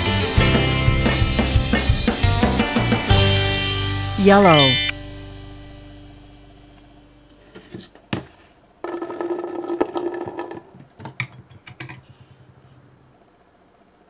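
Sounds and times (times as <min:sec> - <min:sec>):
musical jingle: 0:04.2 - 0:05.7.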